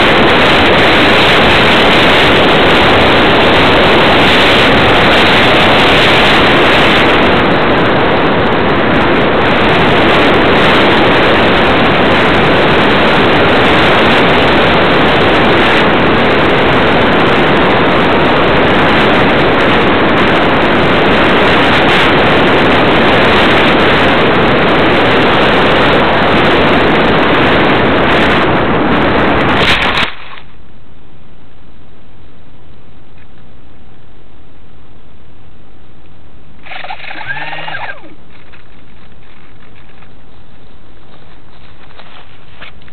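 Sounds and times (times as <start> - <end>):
airflow rushing: 36.5 - 42.9
plane bumping into grass: 36.6 - 42.9.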